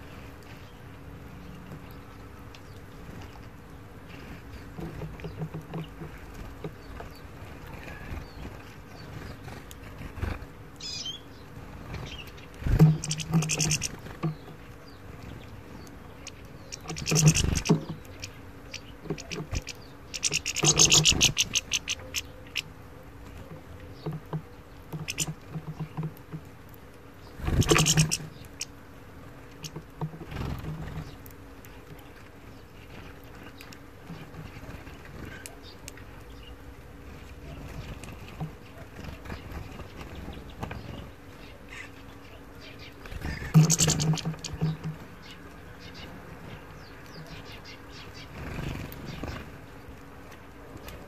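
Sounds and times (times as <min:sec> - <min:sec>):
bird pecking seeds in metal pan: 0:12.7 - 0:14.0, 0:43.3 - 0:44.9.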